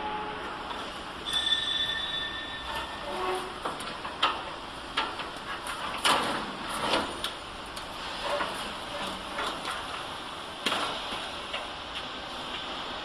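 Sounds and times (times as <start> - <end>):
metal scraping: 1.2 - 4.2.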